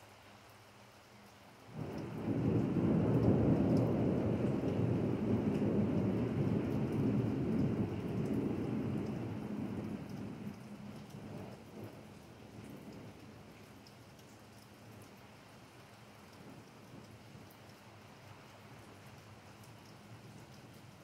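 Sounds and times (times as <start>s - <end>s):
rain falling on pavement: 0.0s - 21.0s
thunder rolling: 1.7s - 13.3s.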